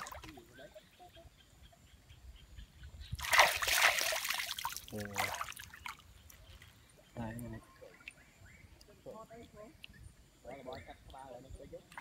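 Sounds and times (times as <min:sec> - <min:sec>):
water splashing in muddy pool: 0:00.0 - 0:00.5, 0:03.2 - 0:06.0.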